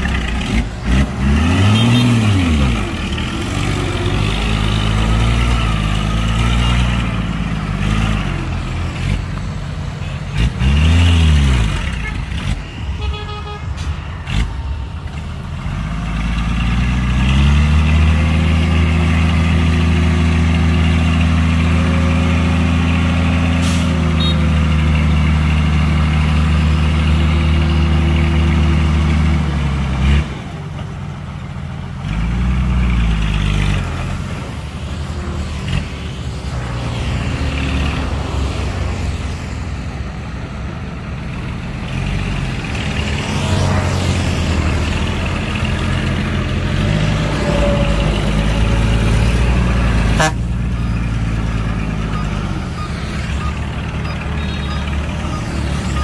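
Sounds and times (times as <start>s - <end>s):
engine revving: 0.0s - 9.5s, 10.2s - 12.8s, 14.2s - 30.6s, 31.9s - 40.0s, 41.7s - 56.0s
heavy diesel engines working: 0.0s - 56.0s.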